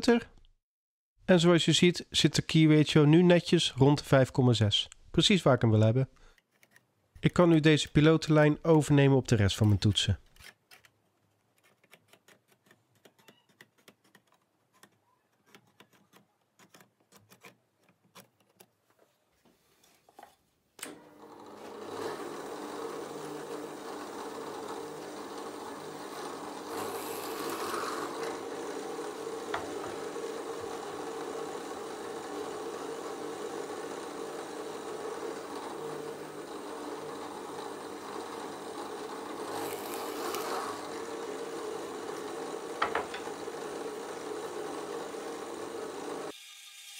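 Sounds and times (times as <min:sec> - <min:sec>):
drill press motor humming: 0:20.8 - 0:46.4
drill bit cutting wood: 0:21.3 - 0:46.9.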